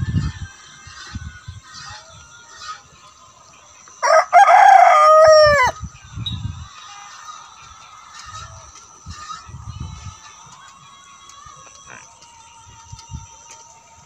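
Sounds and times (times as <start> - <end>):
rooster crowing: 4.0 - 5.8.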